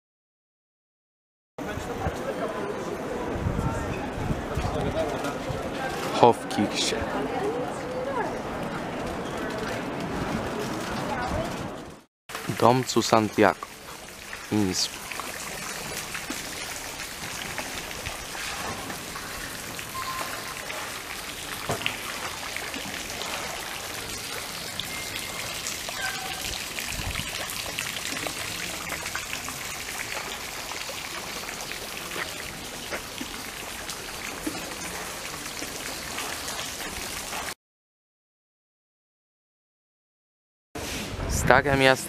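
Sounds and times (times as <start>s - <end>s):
fountain water splashing: 4.4s - 37.6s
water dripping: 12.3s - 37.6s.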